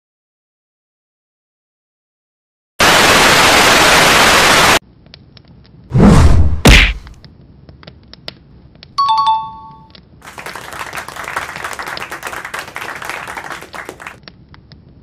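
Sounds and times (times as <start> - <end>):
crackling noise with clicks: 4.8 - 5.9, 7.0 - 9.0, 13.7 - 15.0
two-note notification chime: 9.0 - 9.9.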